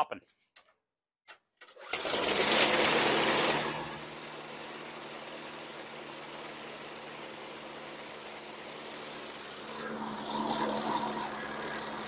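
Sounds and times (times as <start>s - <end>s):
lawn mower engine running: 1.6s - 12.0s.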